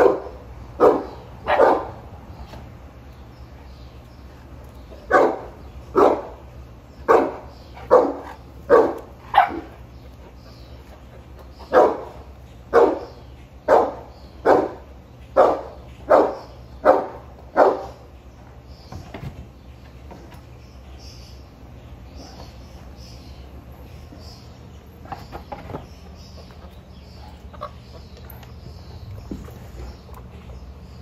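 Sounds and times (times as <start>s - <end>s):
dog barking: 0.0s - 2.0s, 5.1s - 6.4s, 7.1s - 9.8s, 11.7s - 13.1s, 13.7s - 14.8s, 15.4s - 18.0s.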